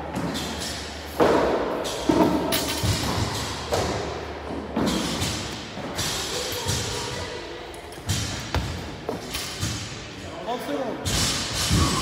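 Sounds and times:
heavy thuds echoing: 8.0 - 10.1.

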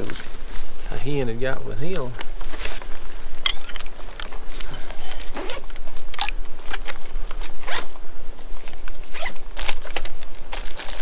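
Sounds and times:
gear rustling: 0.0 - 11.0
steady low hum: 0.0 - 11.0
zipper-like scrapes: 7.5 - 7.9, 9.0 - 11.0.

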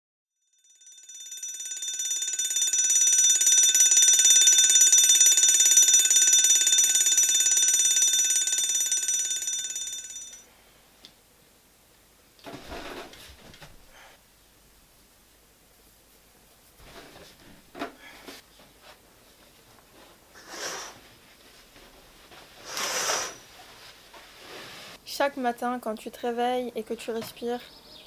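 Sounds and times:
alarm clock ringing: 0.5 - 10.4
bedding rustling: 12.5 - 13.9.

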